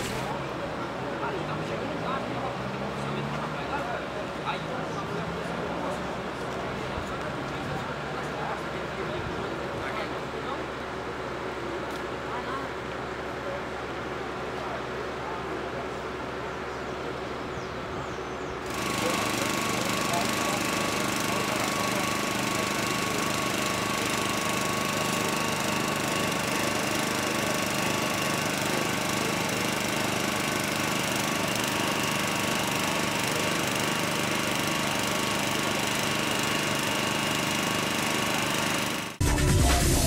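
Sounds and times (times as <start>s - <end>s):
small petrol engine running: 0.0s - 11.6s, 18.6s - 39.3s
music jingle: 39.2s - 40.0s.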